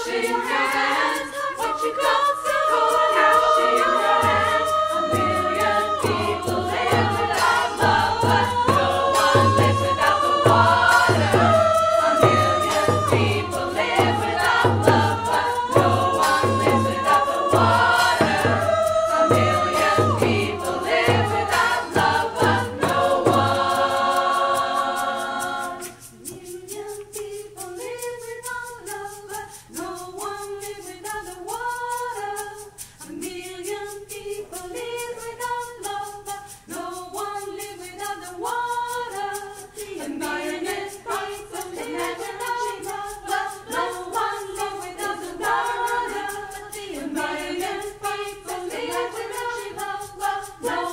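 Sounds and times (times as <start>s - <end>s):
frame drum beat: 0.0s - 27.9s
choir singing: 0.0s - 50.9s.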